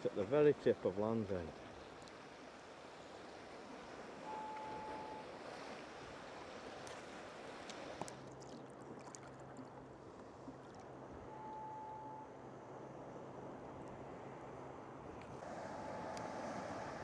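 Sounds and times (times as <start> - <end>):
water lapping against a kayak hull: 1.4 - 11.2
brief steady tone: 4.2 - 5.4, 11.2 - 12.4, 15.7 - 16.4
faint low hum: 8.2 - 17.0.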